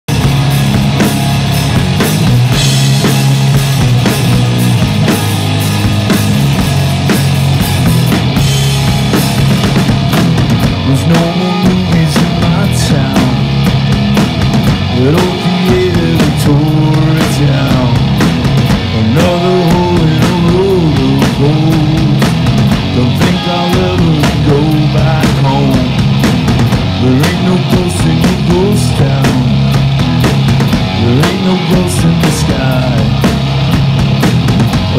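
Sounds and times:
drum kit with cymbals: 0.1 - 34.9
electric guitar: 0.1 - 34.9
man singing: 10.8 - 13.7, 14.9 - 18.2, 18.9 - 26.2, 26.9 - 29.8, 30.9 - 33.3.

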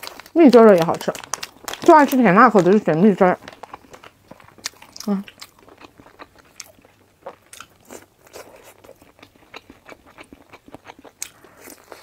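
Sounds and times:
close chewing with mouth clicks: 3.4 - 12.0.

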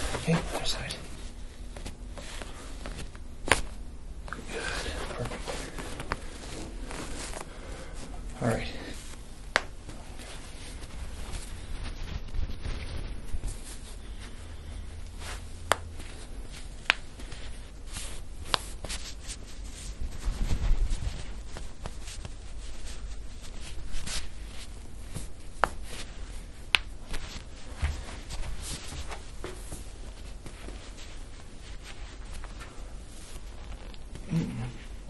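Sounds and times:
rubbing and shuffling of hands and cloth: 0.0 - 35.0.

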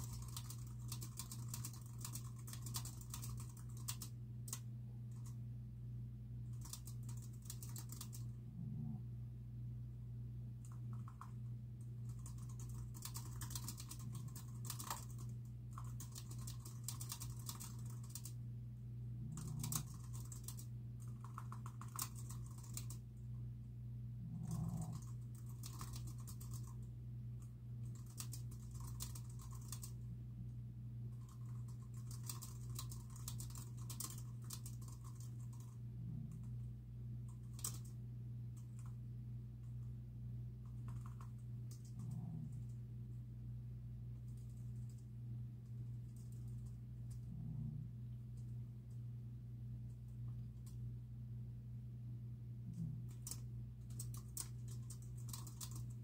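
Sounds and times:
typing on a keyboard: 0.0 - 5.4, 6.5 - 8.3, 10.6 - 18.4, 19.4 - 23.0, 24.4 - 26.9, 27.8 - 30.0, 31.1 - 36.5, 37.3 - 38.0, 38.6 - 39.0, 40.6 - 42.7, 46.0 - 47.2, 52.8 - 56.0
steady low hum: 0.0 - 56.0.

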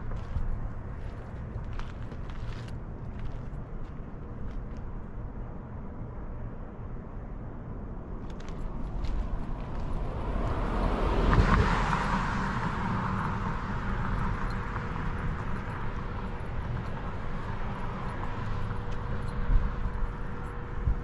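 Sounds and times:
outdoor noise: 0.0 - 21.0
vehicle passing: 8.3 - 21.0.

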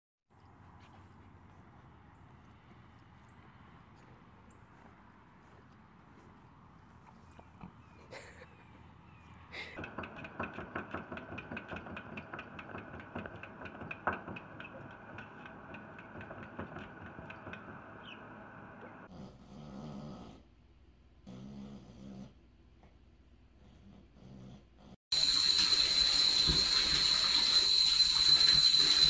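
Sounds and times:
small dog snoring: 19.1 - 20.5, 21.2 - 22.4, 23.6 - 25.0.

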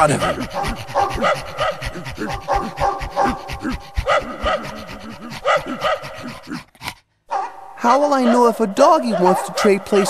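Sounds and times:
dogs yapping: 0.0 - 6.7
dogs panting: 0.0 - 7.0, 7.8 - 10.0.

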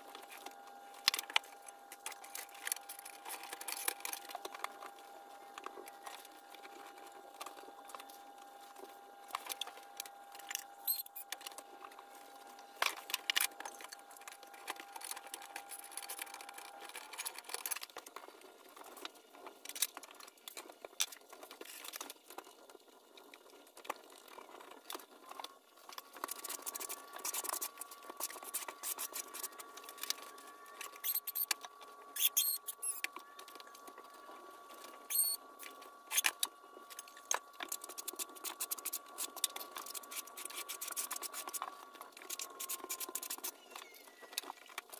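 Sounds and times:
tiles clicking and scraping: 32.2 - 33.1.

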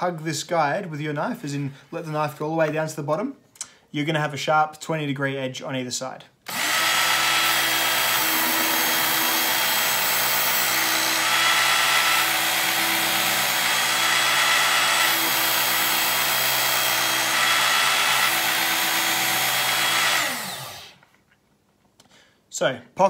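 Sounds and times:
belt knife sharpener running: 6.5 - 21.0.

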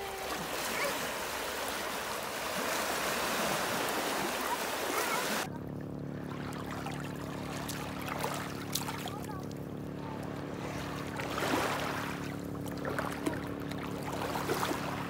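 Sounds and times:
waves washing over rocky shore: 0.0 - 5.5
light water sounds: 0.0 - 15.0
steady low hum: 0.0 - 15.0.

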